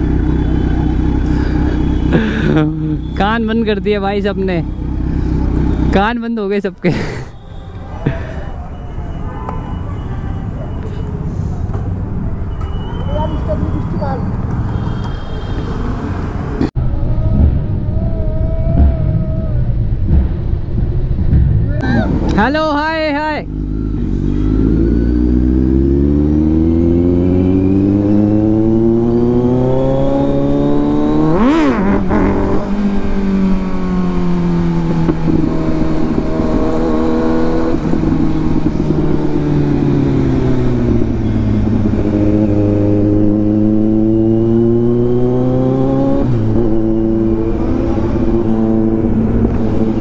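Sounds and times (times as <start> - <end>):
motorcycle engine accelerating: 0.0 - 6.2, 23.4 - 50.0.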